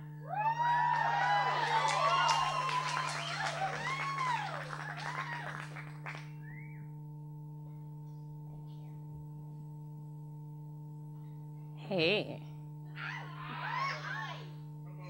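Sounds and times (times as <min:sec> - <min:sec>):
electrical hum: 0:00.0 - 0:15.0
audience whooping and cheering: 0:00.2 - 0:06.2.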